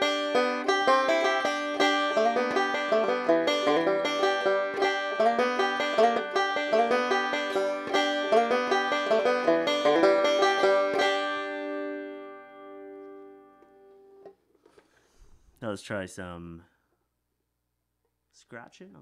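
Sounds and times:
banjo picked fast: 0:00.0 - 0:13.3.

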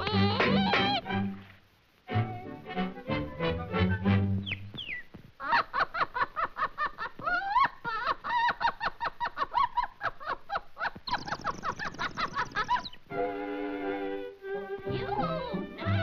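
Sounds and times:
cartoon bird squawking chatter: 0:11.0 - 0:13.0.

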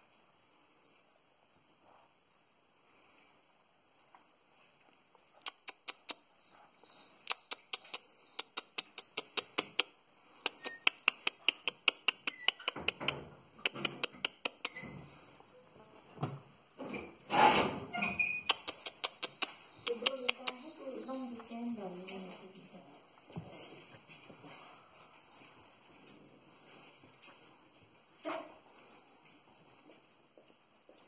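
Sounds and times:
sharp clicks: 0:05.4 - 0:06.2, 0:07.2 - 0:14.8, 0:18.4 - 0:20.7.

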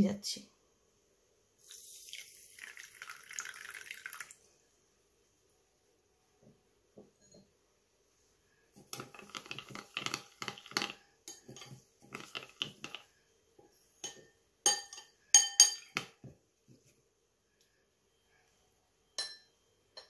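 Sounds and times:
spoon scraping a ceramic bowl: 0:08.9 - 0:13.1
spoon clinking on china: 0:14.0 - 0:16.1, 0:19.2 - 0:19.5.

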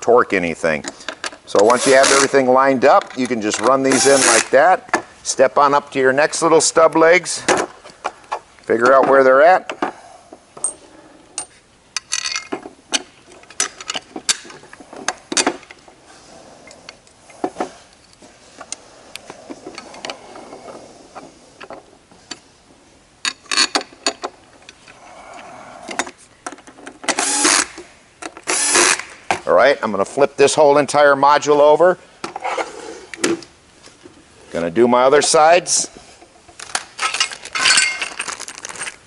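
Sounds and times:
screws clicking on metal frame: 0:01.6 - 0:02.4, 0:27.1 - 0:27.8, 0:28.4 - 0:29.1
cordless drill running: 0:27.2 - 0:27.7, 0:28.5 - 0:29.0.

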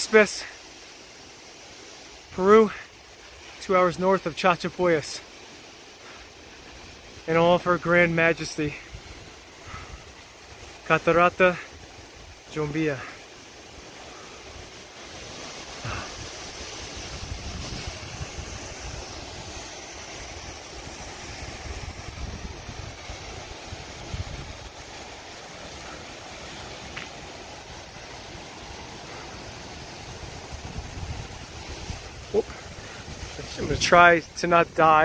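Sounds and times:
waterfall roaring: 0:00.0 - 0:35.0
wind buffeting microphone: 0:15.8 - 0:19.6, 0:20.8 - 0:24.8.

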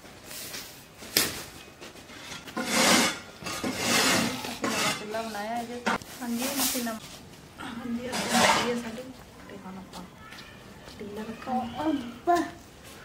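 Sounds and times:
twigs scraping against clay stove: 0:00.2 - 0:07.3, 0:08.0 - 0:09.0.

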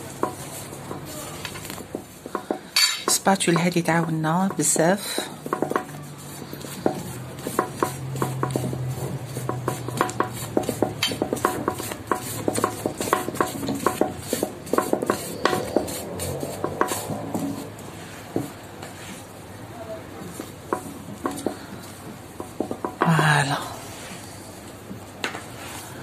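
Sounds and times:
spatula clinking on metal ring: 0:02.8 - 0:03.2
spatula scraping cream: 0:03.3 - 0:19.3.

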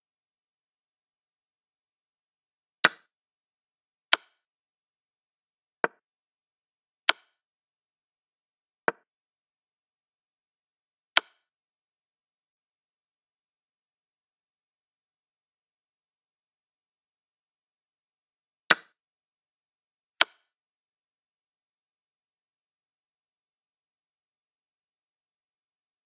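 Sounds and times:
chess pieces clicking on board: 0:02.8 - 0:03.1, 0:04.1 - 0:04.4, 0:07.1 - 0:07.4, 0:18.7 - 0:18.9, 0:20.2 - 0:20.5.

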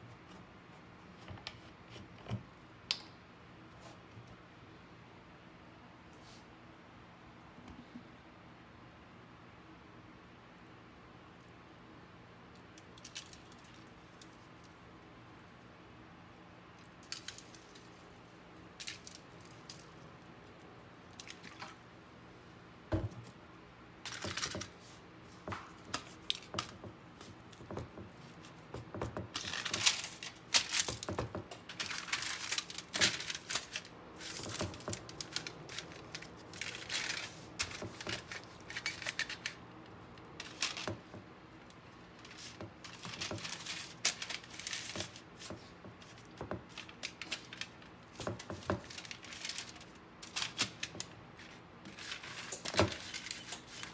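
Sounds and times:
faint steady hum: 0:00.0 - 0:53.9
aluminium foil crinkling: 0:12.8 - 0:14.8, 0:16.8 - 0:20.3, 0:24.0 - 0:53.9.

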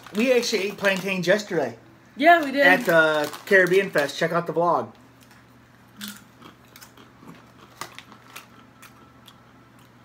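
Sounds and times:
chips crunching while chewed: 0:06.0 - 0:10.0.

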